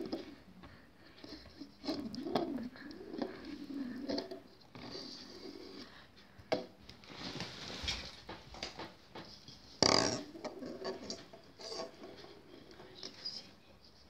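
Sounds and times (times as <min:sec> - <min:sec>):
plastic balls knocking on wooden table: 0:08.3 - 0:11.8.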